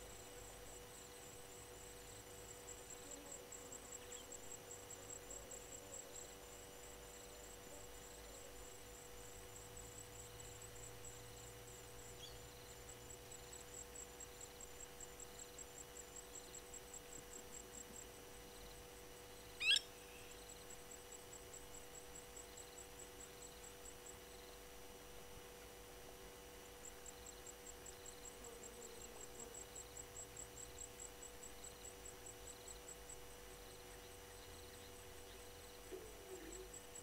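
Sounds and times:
high-pitched insect chirping: 19.5s - 20.7s
shrill bird call: 19.6s - 20.3s.

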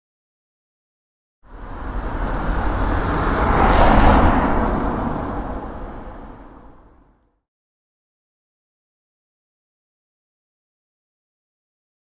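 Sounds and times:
car driving past: 1.5s - 7.2s.

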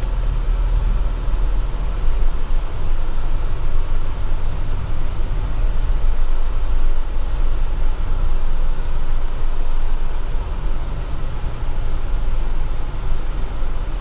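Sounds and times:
off-road vehicle engine and tyres rumbling: 0.0s - 14.0s.

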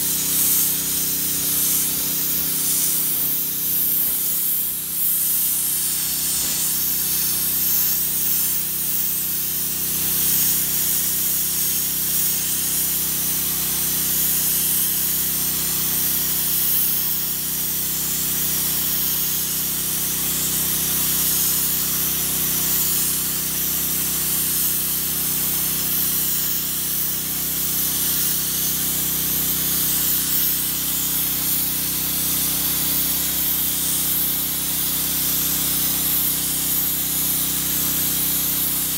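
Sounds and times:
abrasive blast gun hissing: 0.0s - 15.3s.

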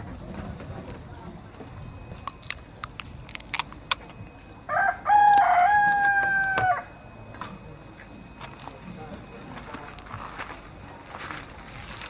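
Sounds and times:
rooster crowing: 4.7s - 7.0s.

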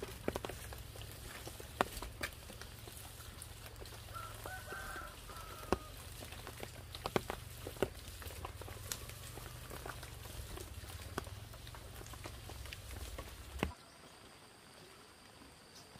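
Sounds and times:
sharp taps and knocks: 5.0s - 13.7s.

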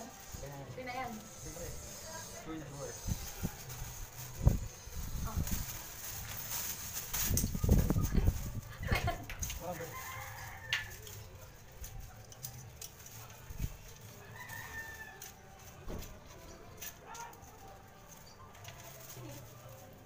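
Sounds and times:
low background noise: 0.0s - 20.0s
rooster crowing: 9.7s - 11.1s, 14.2s - 15.4s.

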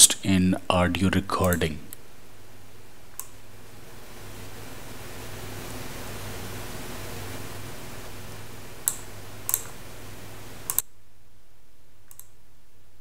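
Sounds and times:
low hum: 0.0s - 13.0s
steady hiss: 0.0s - 13.0s
mouse clicks: 3.2s - 3.4s, 8.8s - 9.8s, 10.7s - 10.9s, 12.1s - 12.4s.

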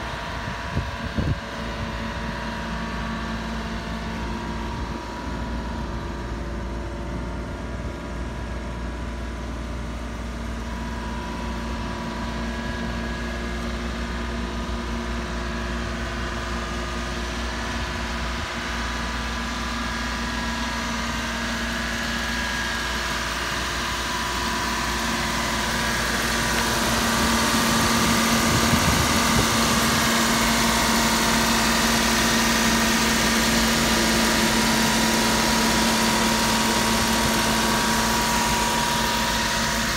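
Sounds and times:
small truck engine idling: 0.0s - 39.9s.

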